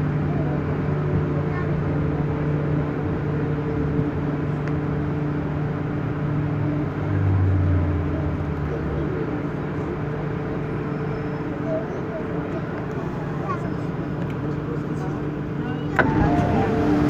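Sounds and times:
train running gear rumble: 0.0s - 17.0s
electric traction hum: 15.9s - 17.0s.

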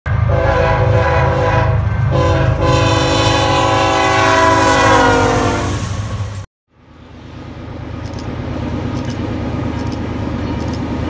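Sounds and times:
train rumbling: 0.1s - 11.0s
locomotive air horn chord: 0.2s - 5.9s.

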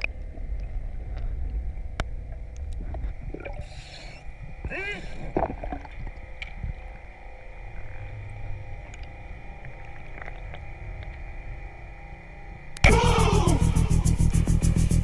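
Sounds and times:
underwater low rumble: 0.0s - 14.6s
faint hum: 0.0s - 15.0s
faint clicks: 7.8s - 11.3s.

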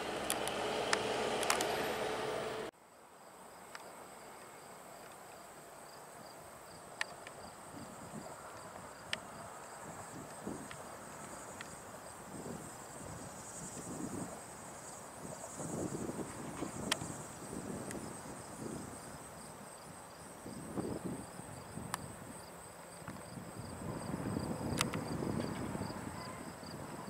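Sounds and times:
loud steady noise: 0.0s - 2.7s
insects trilling: 3.2s - 27.0s.

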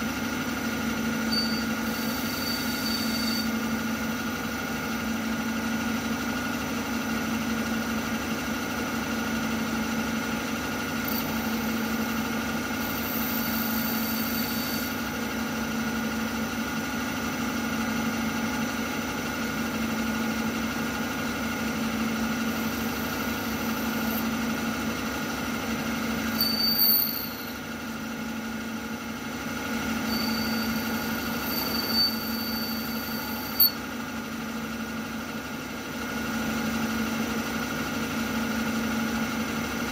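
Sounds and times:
high-pitched squeal: 1.3s - 3.6s, 12.8s - 15.1s, 26.2s - 27.6s, 30.0s - 33.8s
milling spindle humming: 10.9s - 15.5s, 22.1s - 24.6s, 25.9s - 28.0s, 29.8s - 33.9s.

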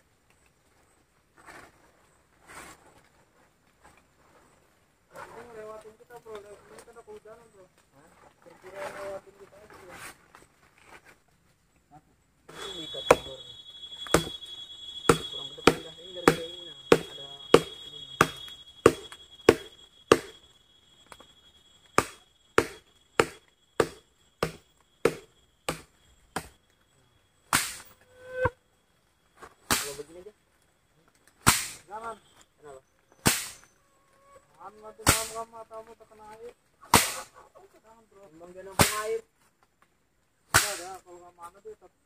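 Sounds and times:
sharp blows on wood: 12.5s - 26.6s, 27.5s - 28.6s, 29.7s - 30.0s, 31.4s - 31.9s, 33.2s - 33.7s, 35.0s - 35.4s, 36.9s - 37.4s, 38.8s - 39.1s, 40.5s - 40.9s.

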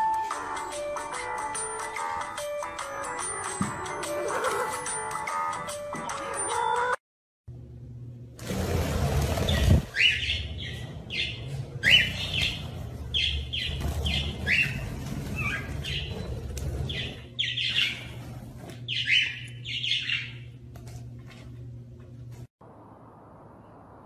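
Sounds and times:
cockatiels chirping shrilly: 9.5s - 16.2s, 18.9s - 20.3s.

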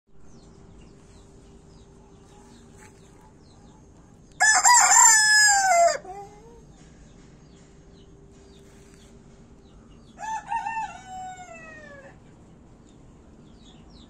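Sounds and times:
rooster crowing: 4.4s - 6.5s, 10.2s - 12.2s.

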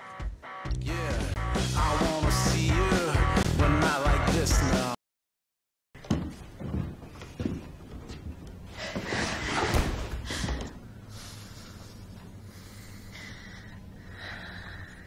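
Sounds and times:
noisy breathing: 8.7s - 15.0s.

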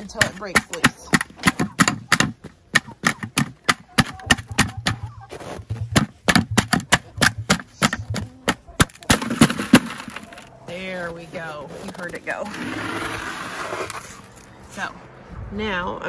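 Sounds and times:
boots stomping on plastic bowl: 0.1s - 10.1s.

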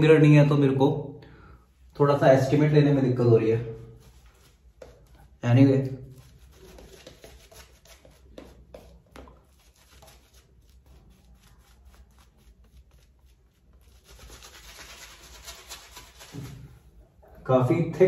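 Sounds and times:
wet brushing strokes: 3.2s - 17.1s.

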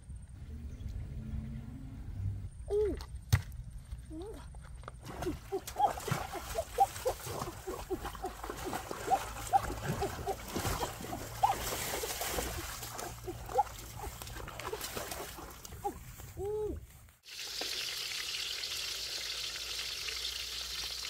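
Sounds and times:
hands splashing in water: 5.0s - 16.0s.

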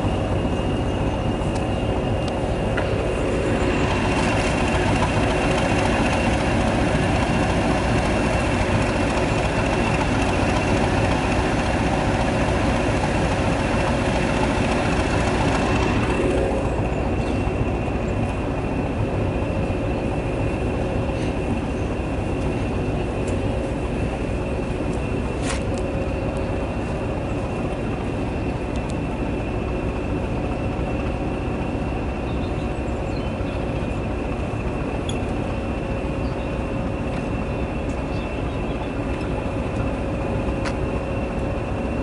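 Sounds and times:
diesel locomotive engine drone: 0.0s - 42.0s.

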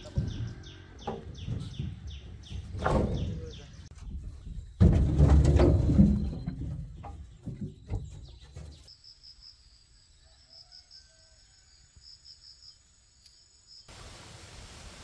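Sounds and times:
insects trilling: 8.8s - 14.0s
steady rushing hiss: 13.9s - 15.0s.

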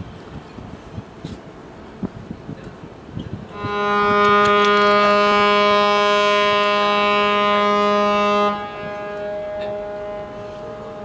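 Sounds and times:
ship horn blast: 3.5s - 11.0s.

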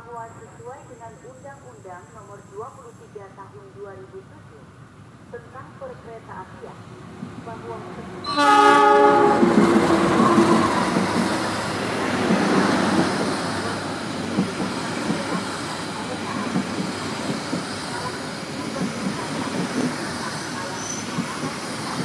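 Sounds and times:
train horn: 8.2s - 10.9s.

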